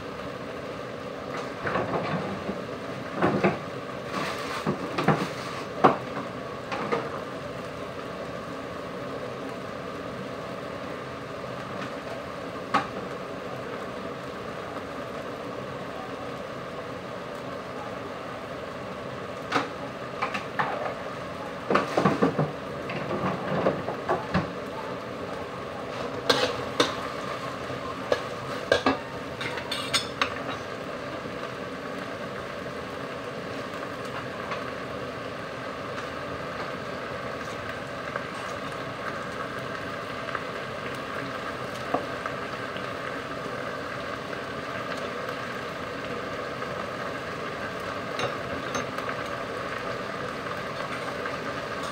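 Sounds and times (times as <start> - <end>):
frying hiss: 0.0 - 51.9
metal spatula scraping wok: 26.2 - 26.7.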